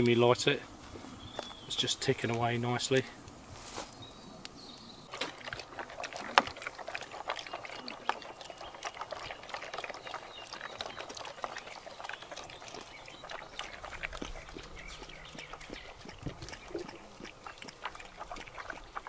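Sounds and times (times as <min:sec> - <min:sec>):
dog crunching dry food: 0:05.1 - 0:19.0.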